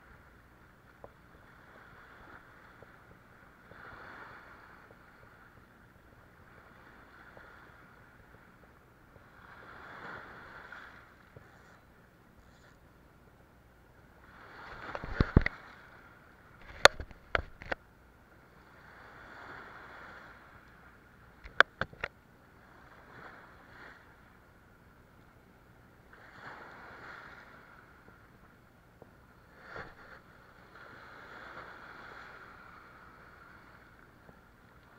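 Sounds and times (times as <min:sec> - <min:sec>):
sharp clicks and knocks: 0:21.4 - 0:22.1.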